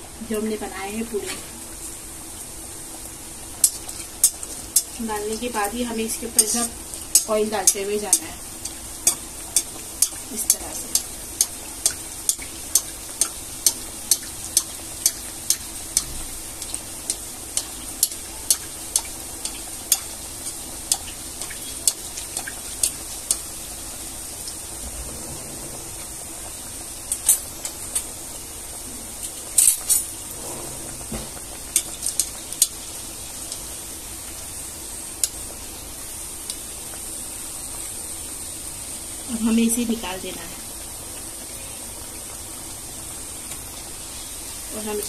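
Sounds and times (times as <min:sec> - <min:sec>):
bread sizzling in hot oil: 0:00.0 - 0:45.0.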